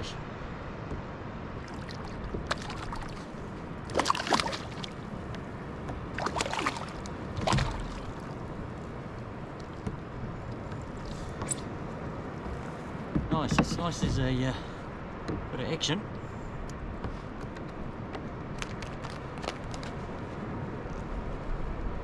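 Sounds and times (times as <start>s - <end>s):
water sloshing against a hull: 0.6s - 20.2s
water splashes: 1.4s - 11.8s.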